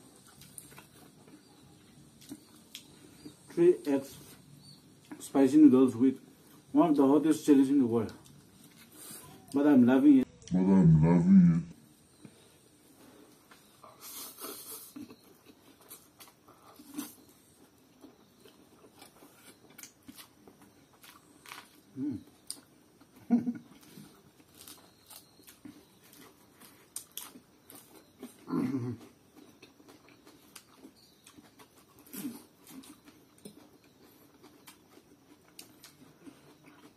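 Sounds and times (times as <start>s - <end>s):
chewing and mouth smacks: 0.2s - 1.4s, 2.1s - 3.0s, 23.8s - 36.9s.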